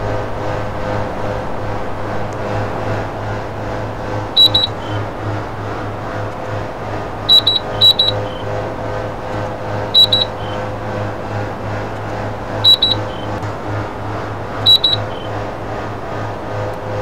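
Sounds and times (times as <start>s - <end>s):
air conditioner humming: 0.0s - 17.0s
short high electronic beeps: 4.4s - 5.0s, 7.3s - 8.4s, 10.0s - 10.6s, 12.7s - 13.3s, 14.7s - 15.3s.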